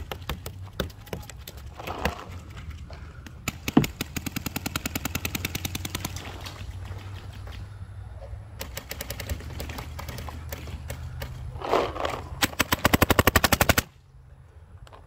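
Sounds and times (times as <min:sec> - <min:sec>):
paintball markers firing rapidly: 0:03.4 - 0:06.3, 0:08.6 - 0:11.8, 0:12.4 - 0:13.9.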